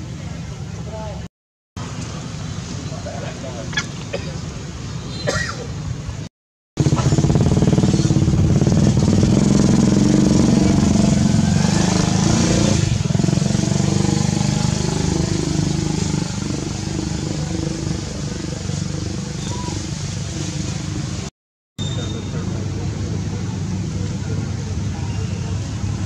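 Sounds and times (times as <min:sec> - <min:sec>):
motorcycle engine running: 0:06.8 - 0:21.2.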